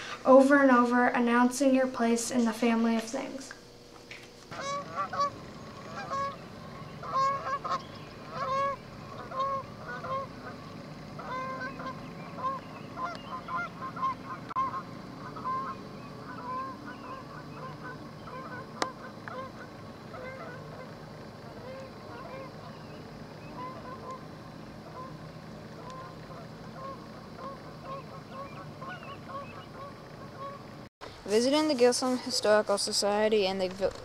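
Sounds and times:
geese honking in flight: 0:04.5 - 0:30.9.

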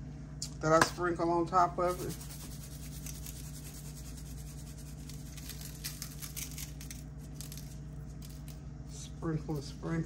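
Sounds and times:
steady low hum: 0:00.0 - 0:10.0
shaker jar rattling: 0:01.9 - 0:08.6.

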